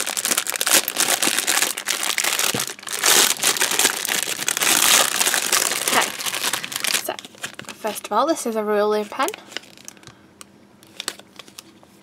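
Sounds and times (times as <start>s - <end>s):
plastic bag crinkling: 0.0s - 8.2s, 8.9s - 10.2s.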